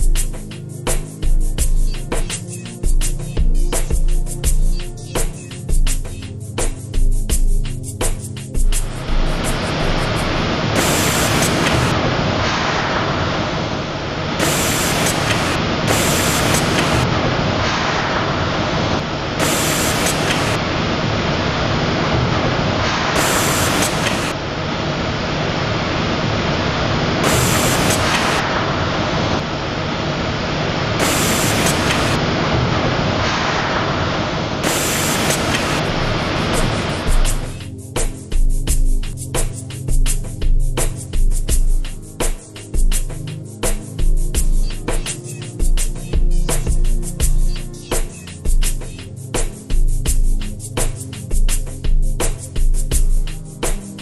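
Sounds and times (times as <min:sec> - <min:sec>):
machine hiss: 0:08.6 - 0:38.8.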